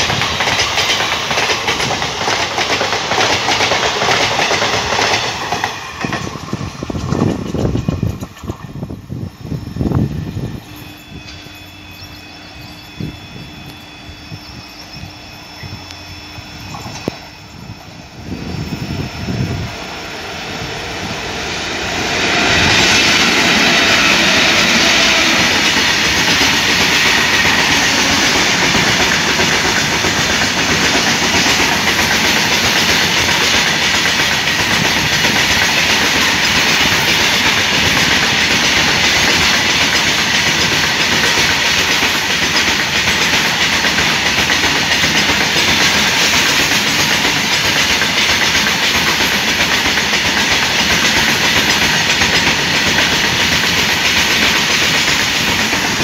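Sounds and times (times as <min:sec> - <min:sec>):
train wheels clattering on rails: 0:00.0 - 0:12.3, 0:16.6 - 0:56.0.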